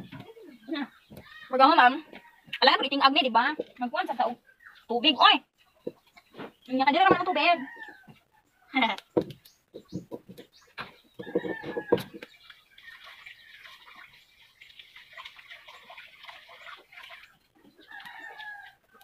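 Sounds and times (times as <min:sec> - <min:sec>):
chickens calling: 0:05.6 - 0:19.0.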